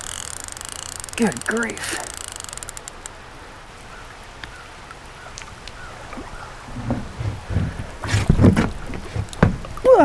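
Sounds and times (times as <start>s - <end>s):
rain hissing: 0.0s - 10.0s
raindrops ticking: 0.0s - 10.0s
low handling bumps: 6.1s - 9.9s.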